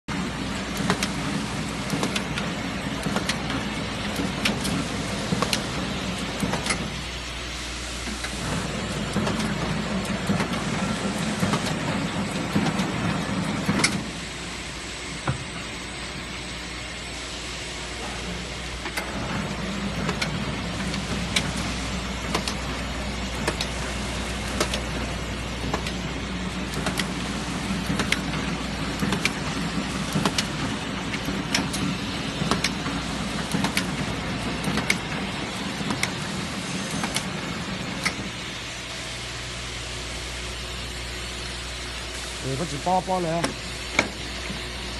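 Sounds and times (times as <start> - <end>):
machine humming: 0.1 - 44.9
sharp machine clacks: 1.8 - 5.8, 19.9 - 22.7, 23.3 - 23.8, 24.4 - 38.3.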